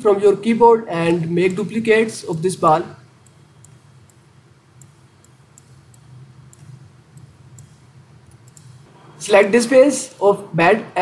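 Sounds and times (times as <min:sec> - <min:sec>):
low steady hum: 0:00.0 - 0:11.0
faint computer mouse clicks: 0:04.8 - 0:08.9.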